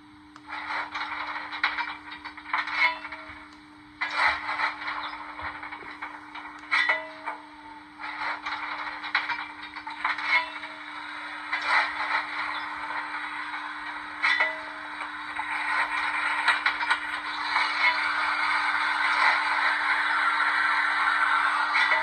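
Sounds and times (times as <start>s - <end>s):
low hum: 0.0s - 22.0s
model steam locomotive sound: 0.0s - 22.0s
steady hiss: 7.6s - 22.0s.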